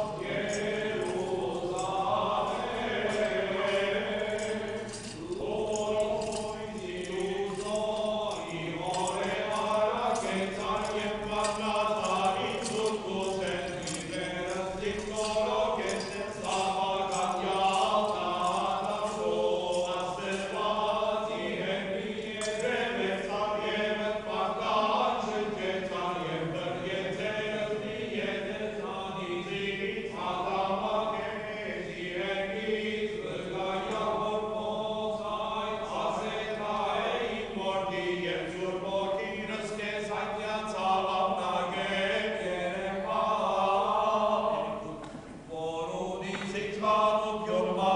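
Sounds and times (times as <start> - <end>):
metallic jingling of chains and bells: 0.0 - 24.0
male clergy chanting a hymn: 0.0 - 47.9.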